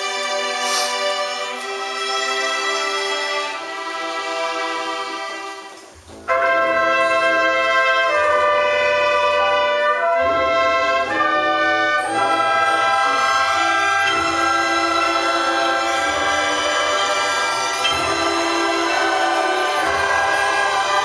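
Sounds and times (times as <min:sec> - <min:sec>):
orchestra playing chords: 0:00.0 - 0:21.0
choir singing: 0:06.6 - 0:21.0.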